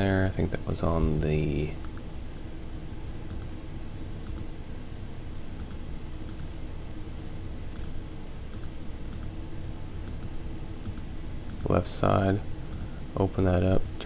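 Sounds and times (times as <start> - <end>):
steady low hum: 0.0 - 14.0
computer mouse clicking: 3.3 - 3.6, 4.2 - 4.5, 5.6 - 6.6, 7.7 - 9.4, 10.0 - 11.8, 12.7 - 13.0.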